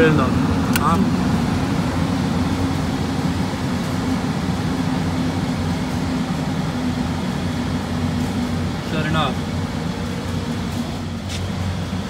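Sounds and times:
air conditioning unit humming: 0:00.0 - 0:12.0.

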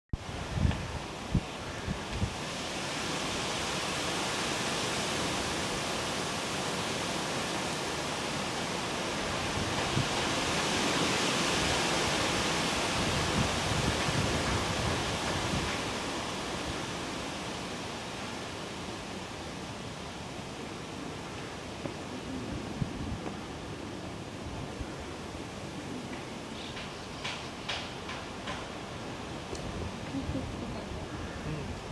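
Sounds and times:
wind thumps on microphone: 0:00.1 - 0:02.4
wind rushing through trees: 0:00.1 - 0:31.9.

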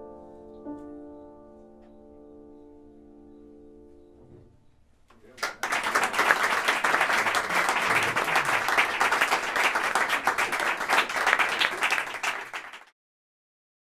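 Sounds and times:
audience applauding: 0:05.2 - 0:12.9.

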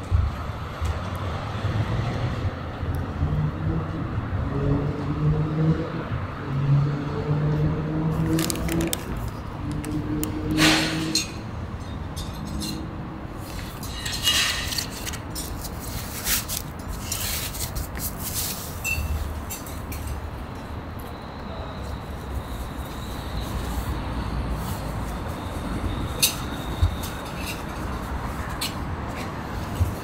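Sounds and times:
plastic bag crinkling: 0:08.2 - 0:09.4.

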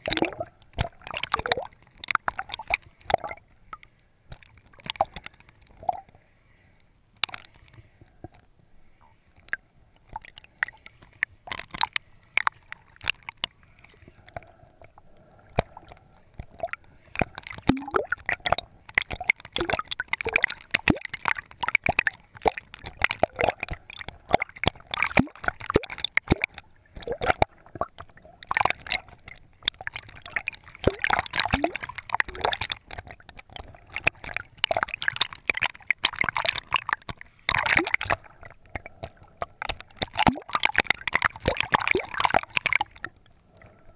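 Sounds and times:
pops and crackles: 0:00.0 - 0:06.2, 0:07.2 - 0:08.5, 0:09.4 - 0:43.3
water gurgling and sloshing: 0:00.0 - 0:43.9.

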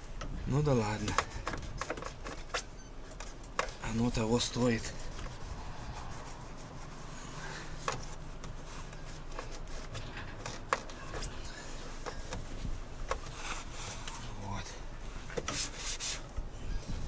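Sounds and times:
cloth rag rubbing a handle: 0:01.1 - 0:12.2.

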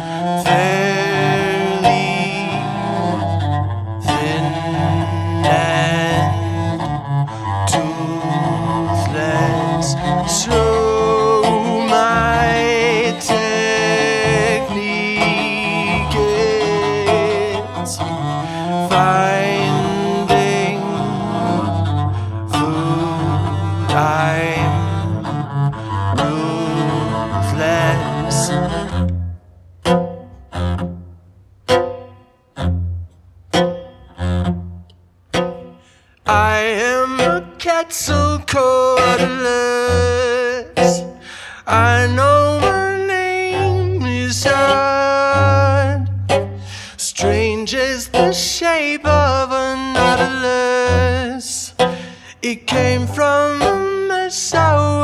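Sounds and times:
man singing: 0:00.0 - 0:03.2, 0:04.0 - 0:06.7, 0:07.6 - 0:21.8, 0:22.5 - 0:25.3, 0:26.2 - 0:28.7, 0:36.3 - 0:46.1, 0:46.9 - 0:55.0
bowed cello playing: 0:00.0 - 0:55.0.

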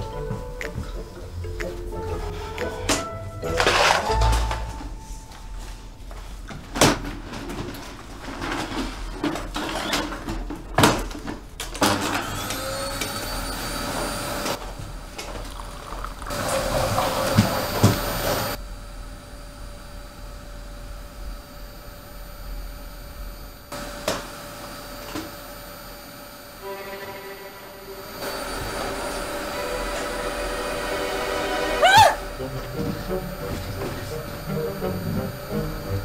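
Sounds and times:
vacuum cleaner motor whining: 0:11.7 - 0:14.7, 0:16.3 - 0:18.6, 0:19.2 - 0:26.7, 0:27.8 - 0:36.0.

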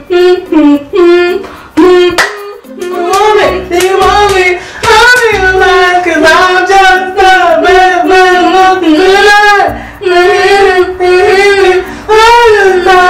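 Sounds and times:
girl singing: 0:00.0 - 0:13.0.

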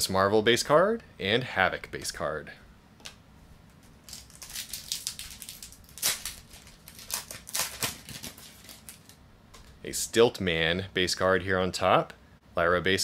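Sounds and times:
foil wrapper crinkling: 0:04.0 - 0:09.2.

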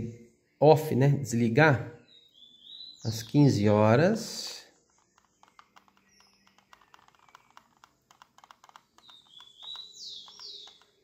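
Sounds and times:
bird chirping falling notes: 0:04.6 - 0:11.0.

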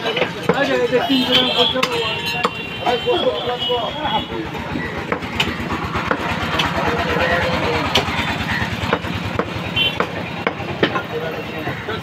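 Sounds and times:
small engine idling: 0:04.0 - 0:11.9.

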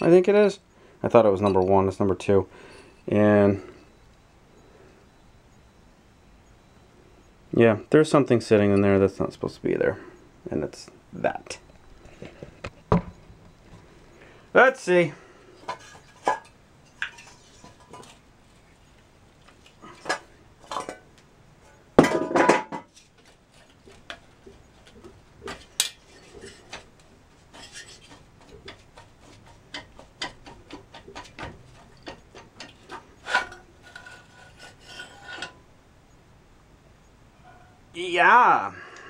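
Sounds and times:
metallic clinks and scrapes: 0:15.6 - 0:18.7, 0:25.6 - 0:35.6
metal clunk and rattle: 0:22.0 - 0:23.0, 0:27.5 - 0:34.4.

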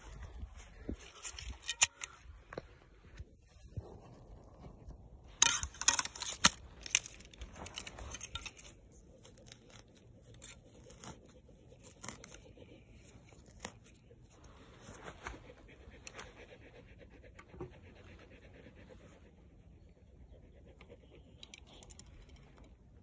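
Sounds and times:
grass crackling and scraping: 0:00.0 - 0:15.6.

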